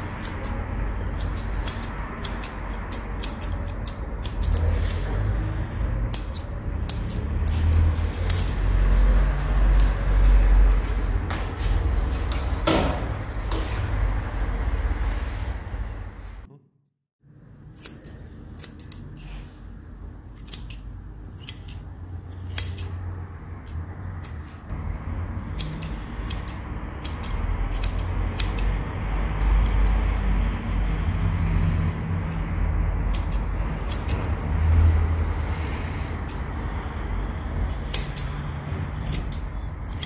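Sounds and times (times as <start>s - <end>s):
scissors snipping fur: 0.0s - 5.1s, 6.0s - 8.7s, 9.3s - 10.6s, 17.7s - 19.4s, 20.3s - 24.8s, 25.4s - 30.2s, 31.8s - 34.4s, 36.2s - 36.5s, 37.2s - 40.0s.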